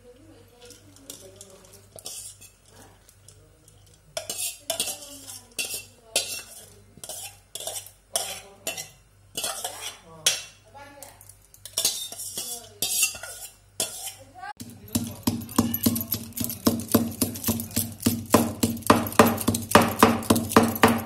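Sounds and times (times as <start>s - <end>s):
ladle scraping steel bowl: 0.6s - 10.0s, 11.6s - 21.0s
ladle knocking pot rim: 14.6s - 21.0s.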